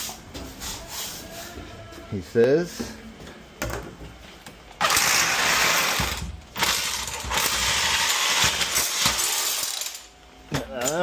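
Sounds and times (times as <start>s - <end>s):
masonry drill grinding: 4.8s - 10.0s.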